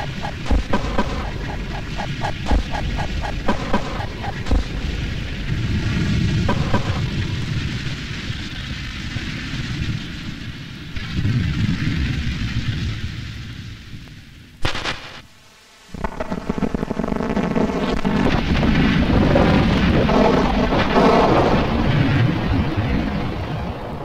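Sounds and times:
buzzing hum: 0.0s - 7.9s
rumbling noise: 0.0s - 13.0s
sharp crackle: 0.0s - 15.3s.

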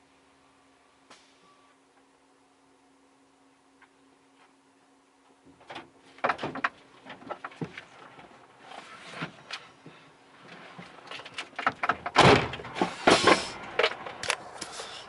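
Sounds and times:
truck door opening: 11.1s - 14.0s
door shutting thud: 11.8s - 13.5s.

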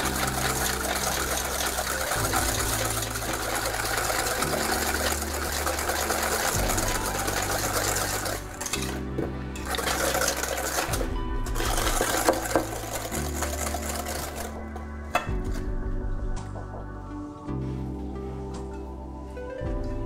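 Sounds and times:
whisk scraping metal bowl: 0.0s - 14.6s
background music with bass: 0.0s - 20.0s.

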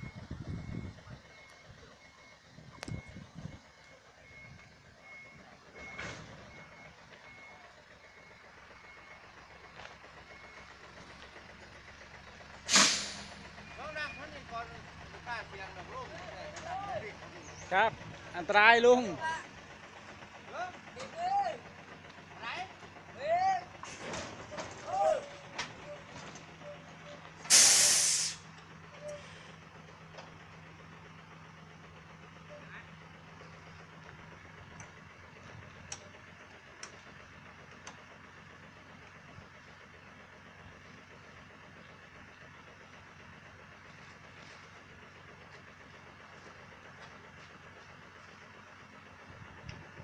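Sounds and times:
truck reverse alarm beeping: 0.0s - 11.8s, 12.5s - 20.0s, 23.0s - 29.6s
diesel engine running: 0.0s - 50.0s
compressed air hiss: 12.7s - 13.3s, 27.5s - 28.4s.

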